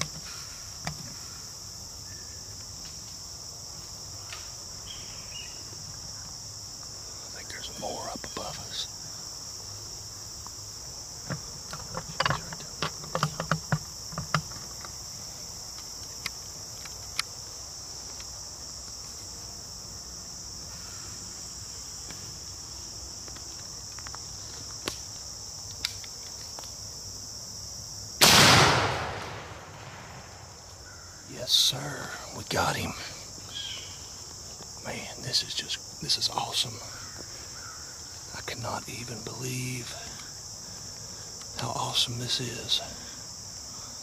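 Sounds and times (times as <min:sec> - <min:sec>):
high insect chorus: 0:00.0 - 0:44.0
shotgun report: 0:28.2 - 0:30.3.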